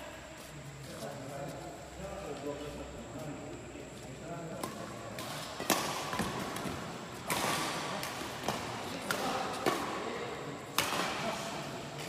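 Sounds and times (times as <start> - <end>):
rackets hitting shuttlecock: 4.5 - 12.0.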